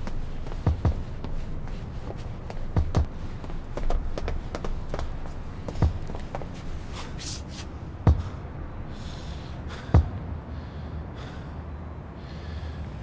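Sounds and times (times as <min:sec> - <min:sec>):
hard gasping breaths: 0:08.1 - 0:13.0.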